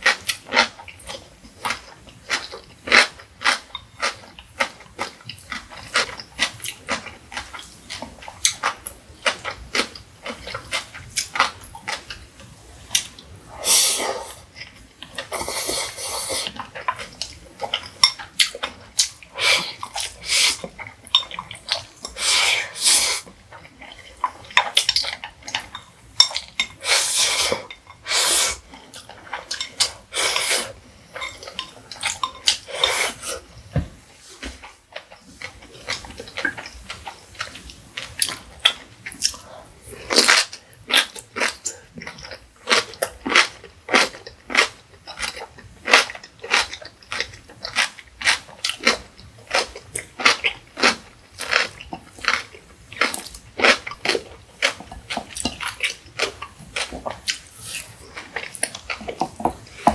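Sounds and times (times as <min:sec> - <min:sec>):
wet chewing and mouth clicks: 0:13.9 - 0:33.5, 0:34.4 - 0:59.9
noodle slurps: 0:26.8 - 0:28.7, 0:30.1 - 0:30.8.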